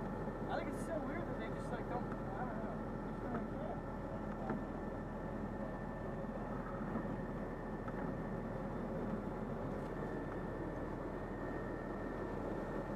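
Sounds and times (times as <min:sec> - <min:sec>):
faint high whine: 0:00.0 - 0:12.9
vehicle engine idling: 0:00.0 - 0:12.9.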